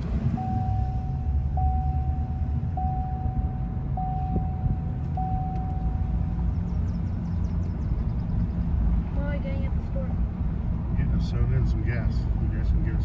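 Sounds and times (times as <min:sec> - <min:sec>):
road and engine rumble: 0:00.0 - 0:13.0
dashboard warning chime: 0:00.1 - 0:06.4.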